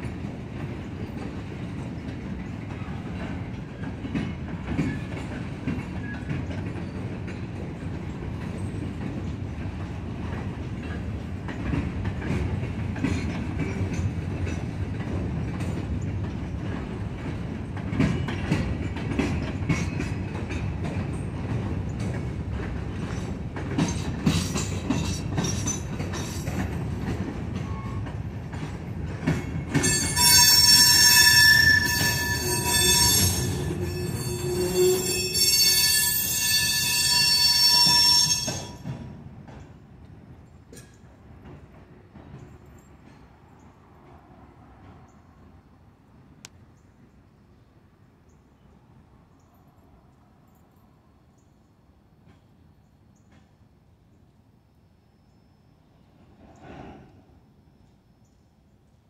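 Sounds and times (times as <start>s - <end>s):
wheels clacking over rail joints: 0.0s - 45.2s
freight train rumbling past: 0.0s - 53.9s, 55.9s - 57.7s
faint high wheel squeaks: 29.8s - 38.9s.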